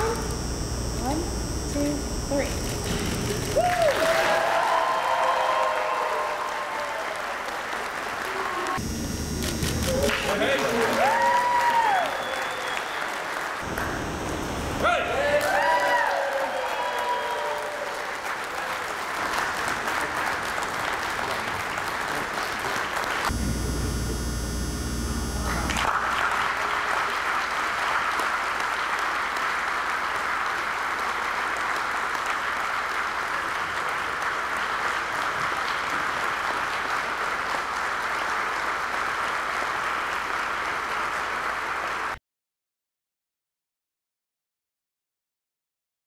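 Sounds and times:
crowd applauding: 2.8 - 8.8, 9.6 - 23.4, 25.4 - 42.2.

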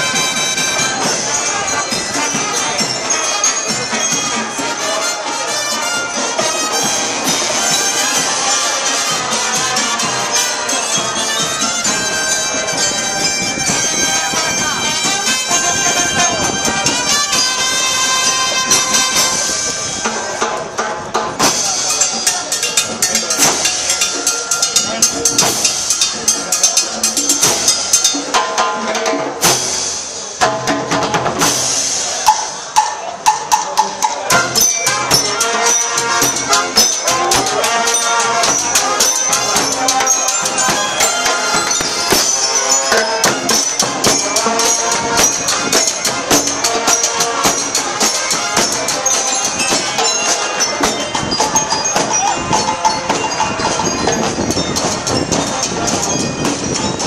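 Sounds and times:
bell lyres and brass tune: 0.0 - 30.4, 31.4 - 57.0
snare and bass drums beating: 21.3 - 28.4, 29.4 - 57.0.

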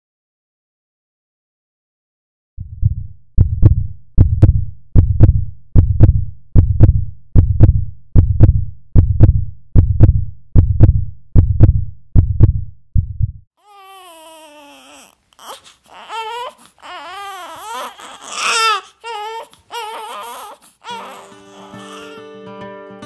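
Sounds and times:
heartbeat double thump: 2.6 - 13.5.

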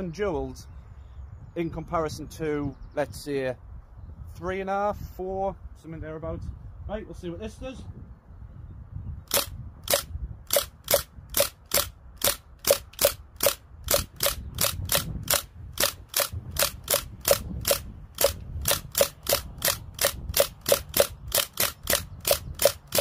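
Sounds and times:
bb gun firing metallic shots: 9.3 - 23.0.

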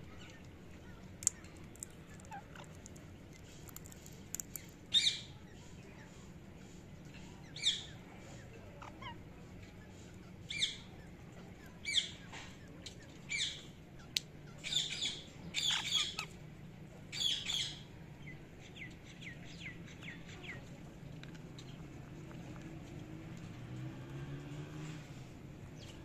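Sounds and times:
parakeets squawking: 2.0 - 2.9, 14.6 - 16.3.

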